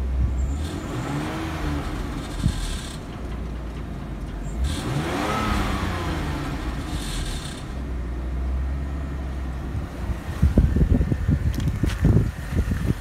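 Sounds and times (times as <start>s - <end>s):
engine revving: 0.0s - 8.8s
car engine idling: 0.0s - 13.0s.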